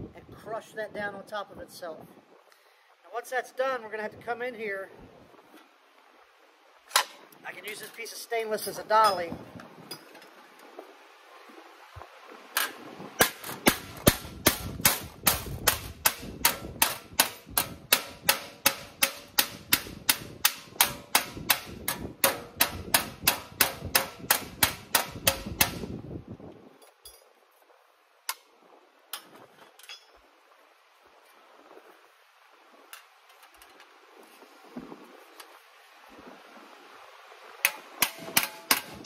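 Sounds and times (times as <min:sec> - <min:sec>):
hammer blows on sheet metal: 0:13.2 - 0:26.0.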